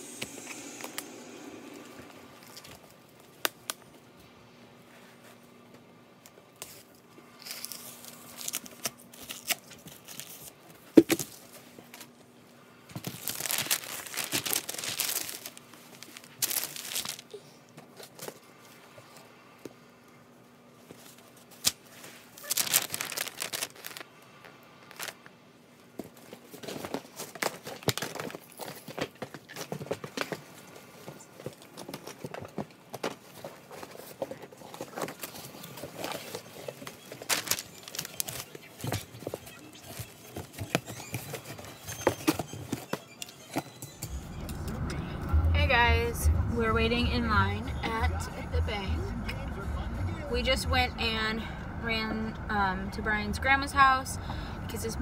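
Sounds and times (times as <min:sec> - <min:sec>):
wrapping paper crinkling and tearing: 0:07.4 - 0:10.6, 0:13.0 - 0:18.3, 0:21.2 - 0:24.1, 0:24.9 - 0:25.2, 0:33.3 - 0:42.7.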